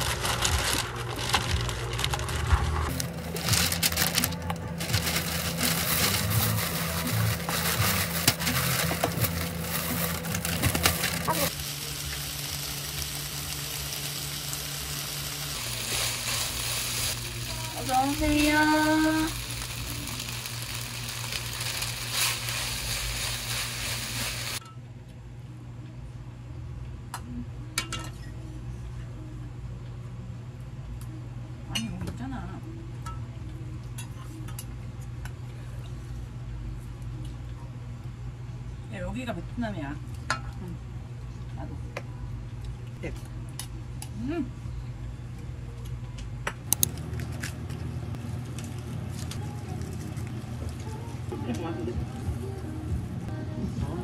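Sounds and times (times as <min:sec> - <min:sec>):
plastic wrap crinkling: 0:00.0 - 0:24.6
low steady hum: 0:00.0 - 0:54.0
rice sizzling in a frying pan: 0:04.8 - 0:24.6.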